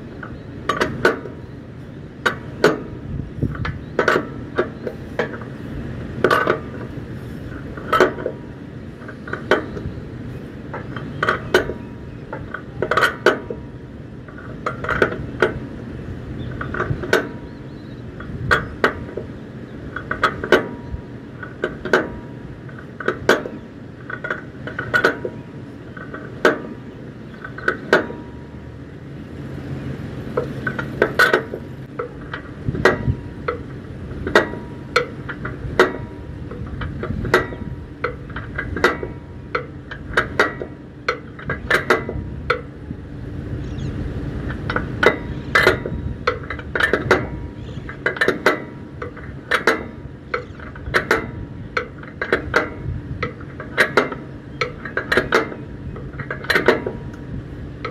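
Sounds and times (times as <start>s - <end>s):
metal clanking on metal: 0.0s - 28.9s, 30.2s - 43.0s, 44.3s - 57.9s.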